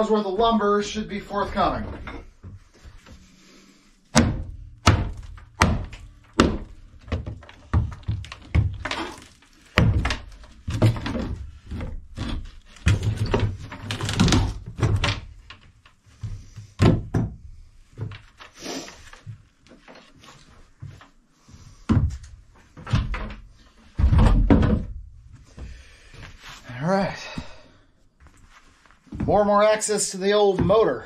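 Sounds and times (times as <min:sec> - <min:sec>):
hammer thunks on wooden boards: 0:04.1 - 0:15.3, 0:16.3 - 0:17.5, 0:22.8 - 0:25.1.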